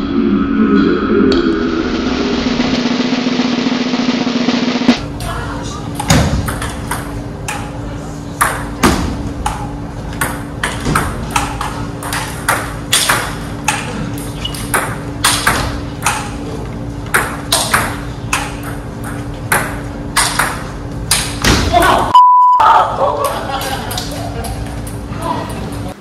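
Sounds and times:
table tennis ball rally: 5.0 - 22.1.

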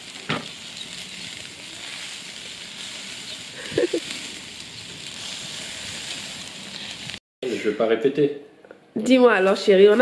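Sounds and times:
sausages sizzling on a grill: 0.0 - 7.7.

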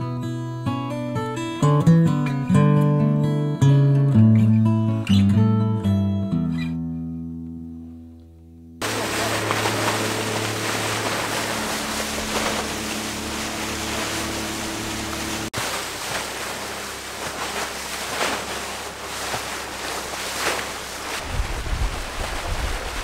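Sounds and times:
motorboat engine drone: 8.8 - 21.3
wind and water rushing: 8.8 - 23.0.

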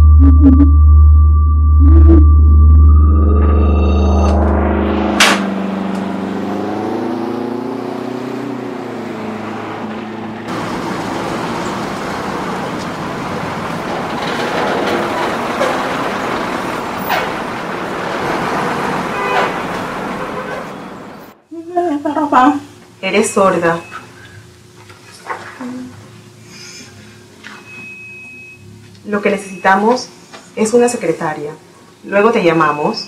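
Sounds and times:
bus engine hum: 1.9 - 22.5
street traffic noise: 4.2 - 21.5, 22.4 - 33.0.

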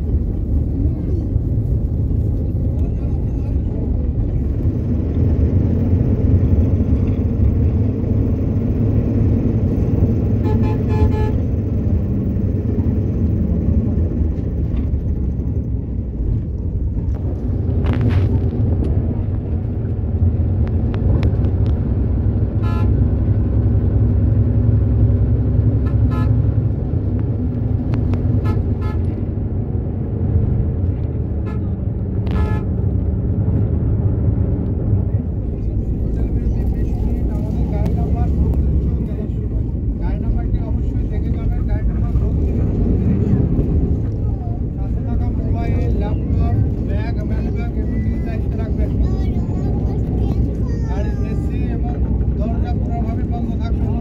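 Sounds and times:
bus engine and road rumble: 0.0 - 54.0
horn toots: 10.4 - 11.5, 22.6 - 23.0, 25.8 - 26.5, 28.4 - 29.2, 31.4 - 32.8.

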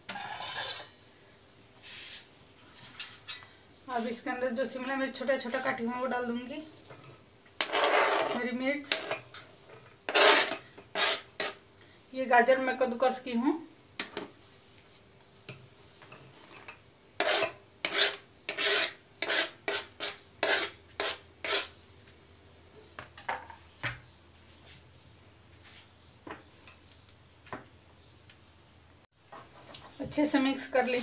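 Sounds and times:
knife scraping plastic chopping board: 7.6 - 9.2, 10.1 - 11.6.

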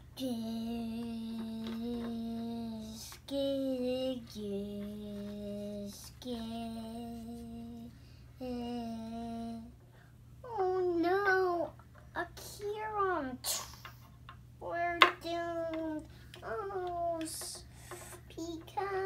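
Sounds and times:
child singing long held notes: 0.2 - 9.8.

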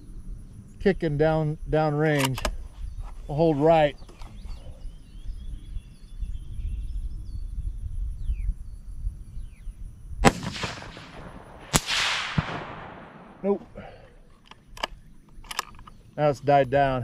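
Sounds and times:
low wind rumble: 0.0 - 17.0
bird chirps: 2.7 - 9.9
faint sharp crack echoing: 10.2 - 13.4
rifle shot crack: 10.2 - 14.0.

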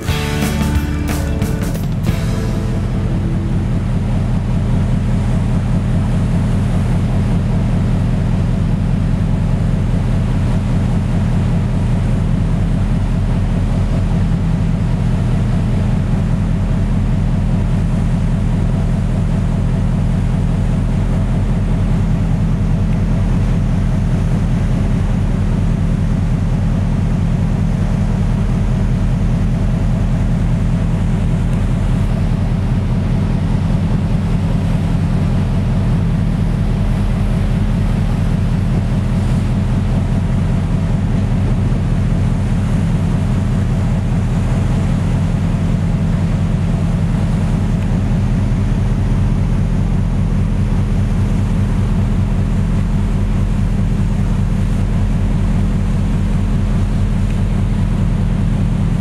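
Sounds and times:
marine diesel engines droning: 0.0 - 59.0.

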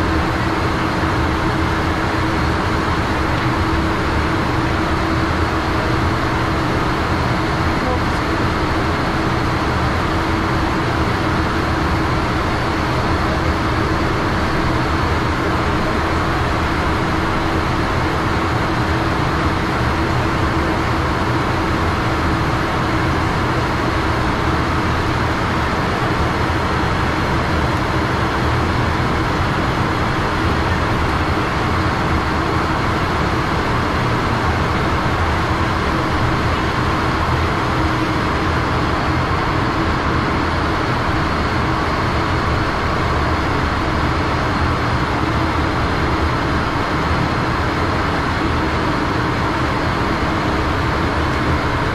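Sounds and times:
jet engines humming: 0.0 - 51.9.

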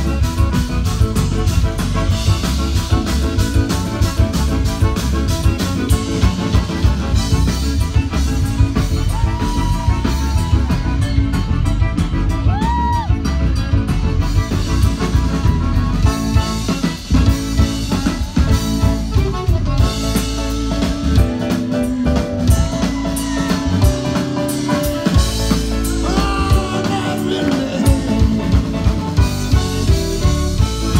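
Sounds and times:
accordion: 0.0 - 30.9
bass: 0.0 - 30.9
drum kit: 0.0 - 30.9
person singing: 20.2 - 29.2.

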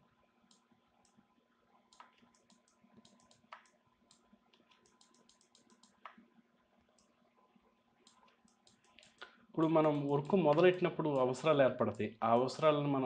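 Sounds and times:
faint electrical hum: 0.0 - 13.0
computer mouse clicks: 1.9 - 6.3, 8.0 - 11.4.

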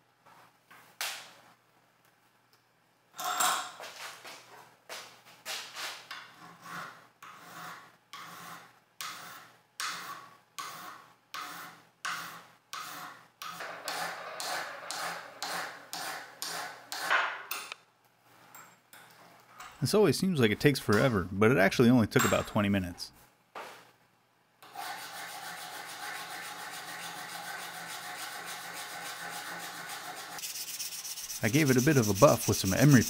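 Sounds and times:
hand file rasping on metal: 6.4 - 13.2, 13.9 - 17.1, 24.7 - 33.0.

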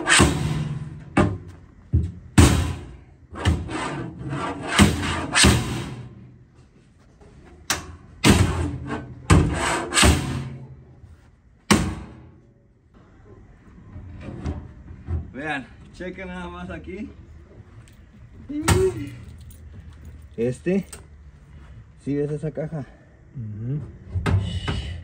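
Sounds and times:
metal bangs and clanks: 0.0 - 6.4, 7.6 - 10.9, 11.7 - 12.4.

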